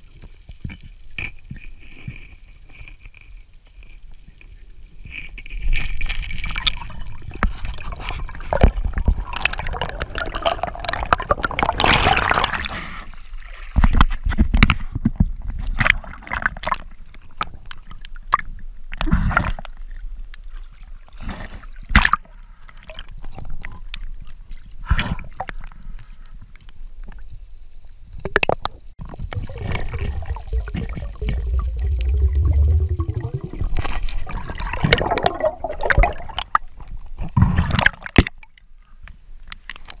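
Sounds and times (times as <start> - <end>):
water gurgling and sloshing: 4.8 - 26.2, 28.2 - 40.0
low rumble: 29.0 - 35.8.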